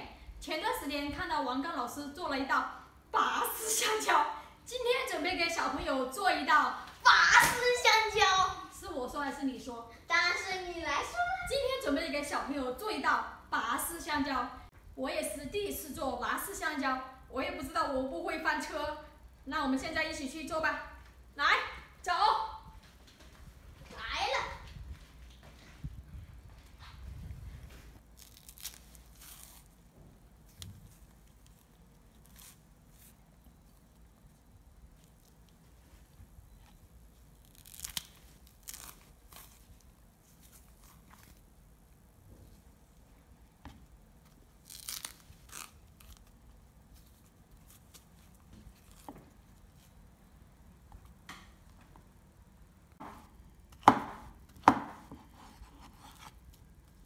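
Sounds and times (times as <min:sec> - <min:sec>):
banana peels tearing: 0:28.0 - 0:35.7, 0:36.6 - 0:41.6, 0:44.2 - 0:49.9
knife chopping on cutting board: 0:53.0 - 0:56.1.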